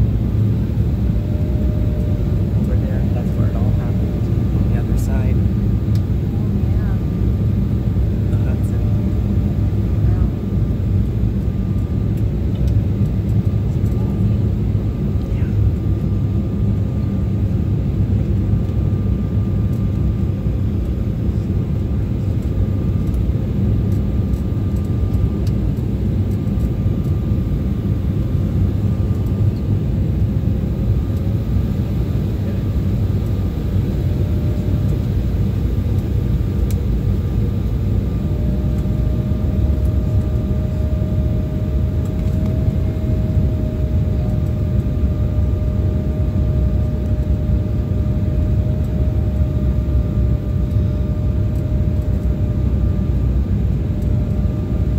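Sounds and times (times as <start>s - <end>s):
faint whine: 0.0s - 54.9s
jet cabin roar: 0.0s - 54.9s.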